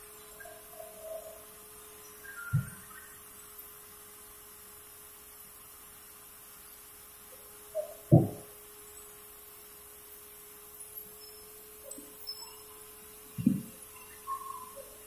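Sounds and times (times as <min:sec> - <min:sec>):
steady single-pitched hum: 0:00.0 - 0:15.0
small knock: 0:08.1 - 0:08.4
heavy wooden thud: 0:08.1 - 0:08.5.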